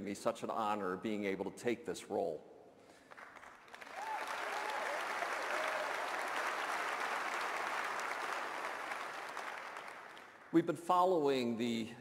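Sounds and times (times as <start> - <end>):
audience applauding: 3.1 - 10.6
faint whoops: 3.9 - 6.5.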